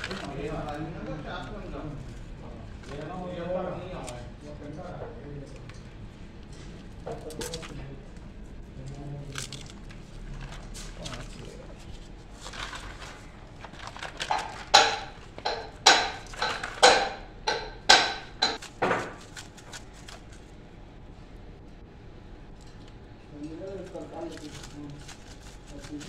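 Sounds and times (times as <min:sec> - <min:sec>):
wire rustling: 0:00.0 - 0:03.3, 0:08.7 - 0:20.6, 0:23.4 - 0:26.0.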